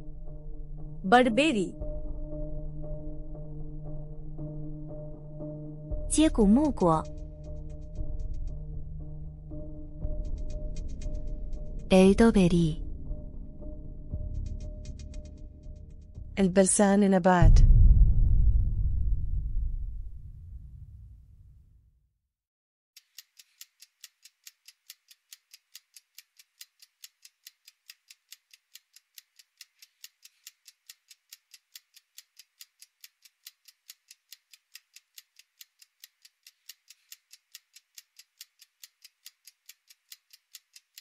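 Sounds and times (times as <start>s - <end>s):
clock-like ticking: 4.4s - 16.8s, 23.0s - 41.0s.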